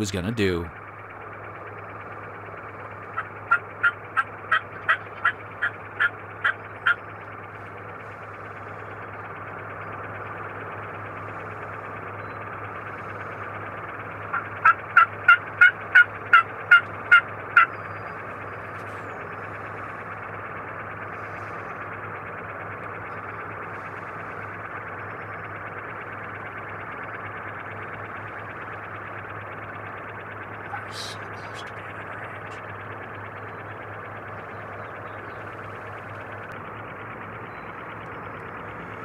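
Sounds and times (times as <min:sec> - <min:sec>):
turkey yelps: 0:03.2 - 0:07.0, 0:14.3 - 0:17.8.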